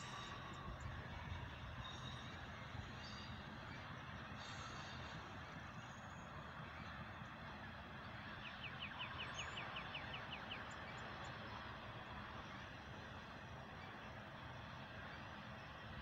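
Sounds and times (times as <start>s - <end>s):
freight train wheels rumbling: 0.0s - 8.4s.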